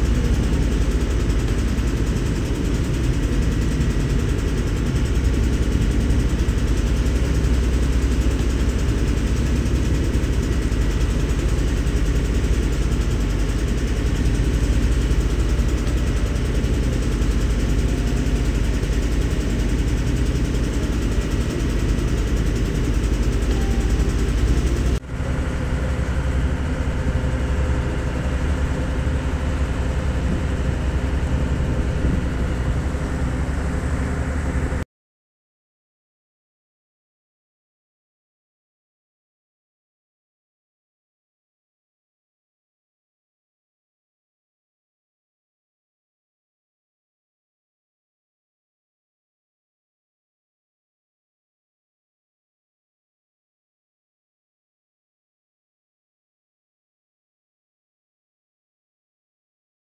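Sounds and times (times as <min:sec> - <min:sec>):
motor boat engine droning: 0:00.0 - 0:34.8.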